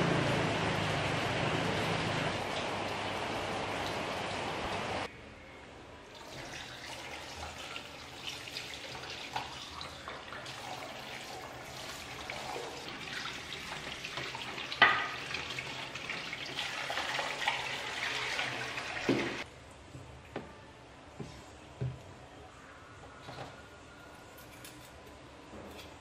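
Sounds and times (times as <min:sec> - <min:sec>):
tap water splashing into sink: 0:06.2 - 0:19.4
dishes clinking: 0:14.8 - 0:15.2.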